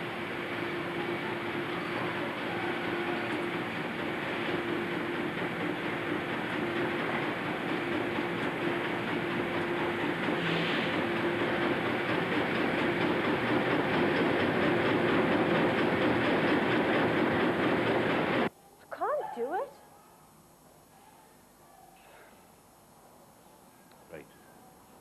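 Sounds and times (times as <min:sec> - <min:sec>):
industrial machinery running: 0:00.0 - 0:18.5.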